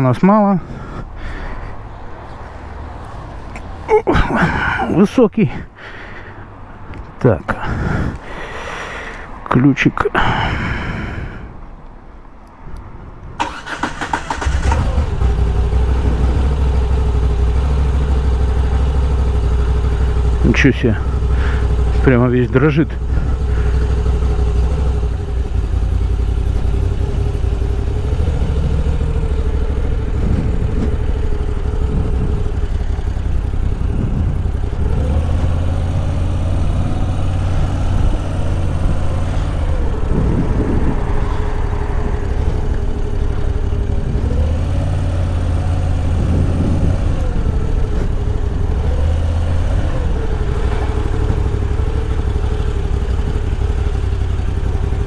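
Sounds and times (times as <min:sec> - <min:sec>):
motorcycle engine rumbling: 0:13.4 - 0:55.0.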